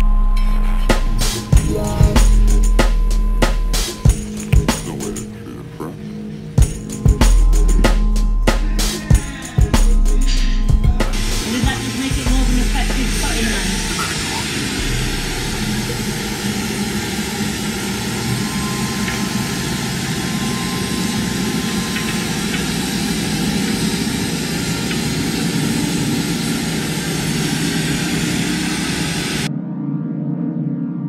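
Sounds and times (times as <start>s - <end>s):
gas torch flame roaring: 6.6s - 29.5s.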